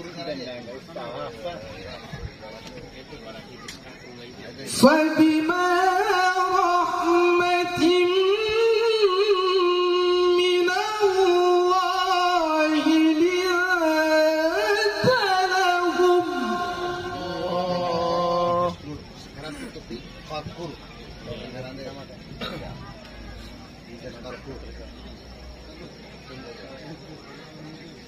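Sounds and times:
man chanting melodically: 4.5 - 19.2.

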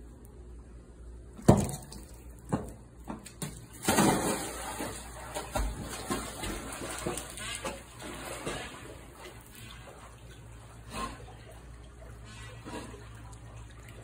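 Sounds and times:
water splashing: 3.4 - 14.0
dog paddling in water: 3.8 - 14.0.

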